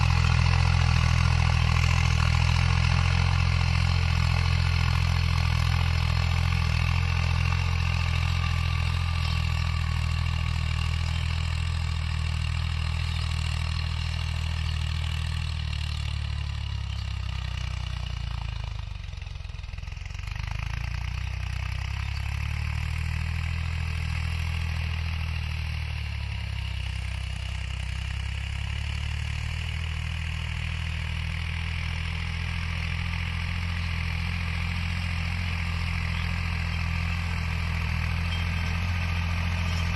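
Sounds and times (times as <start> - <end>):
rotavator tilling dry soil: 0.0 - 39.9
tractor diesel engine running: 0.0 - 39.9.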